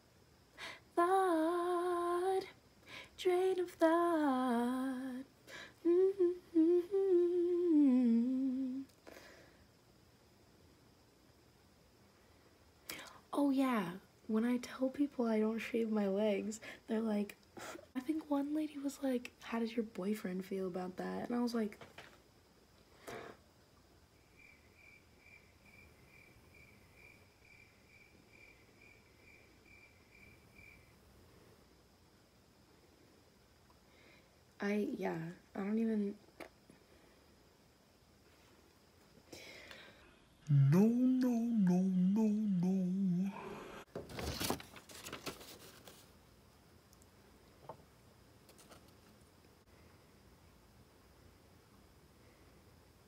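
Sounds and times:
cricket chirping faintly: 0.0s - 53.0s
paper rustling and crackling: 44.0s - 46.2s
small tick: 46.9s - 47.1s.

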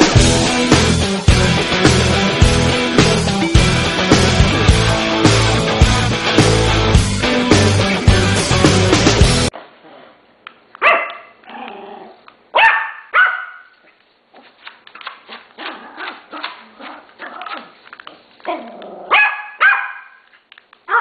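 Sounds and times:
small dog barking: 10.8s - 11.4s, 12.5s - 13.7s, 18.5s - 20.2s
small dog yapping: 10.8s - 13.7s, 18.5s - 20.2s.

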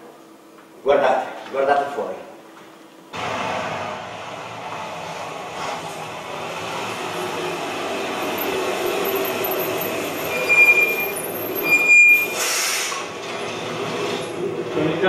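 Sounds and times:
train rumbling: 3.2s - 15.0s
high brake squeals: 8.4s - 13.0s
short hiss: 12.4s - 13.1s.

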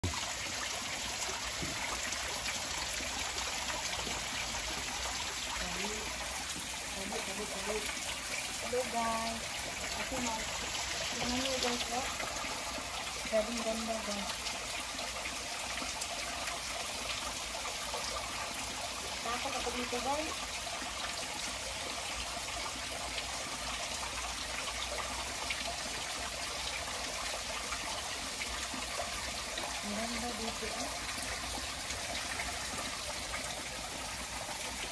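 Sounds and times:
small waterfall splashing: 0.0s - 34.9s.

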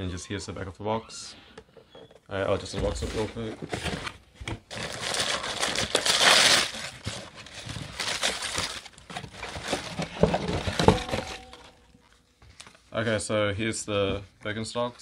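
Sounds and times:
tissue paper rustling: 4.7s - 12.2s.

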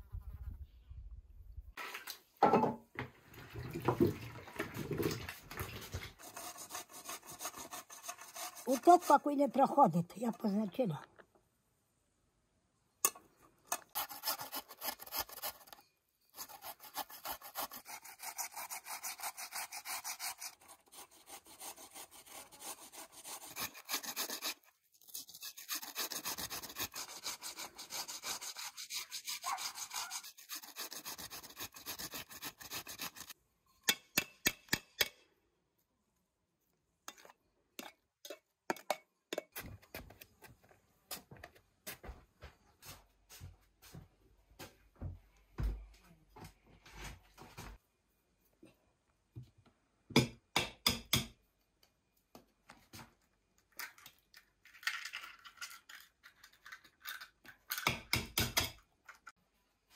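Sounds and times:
potatoes rasping on metal grater: 6.2s - 9.3s, 13.9s - 33.4s.

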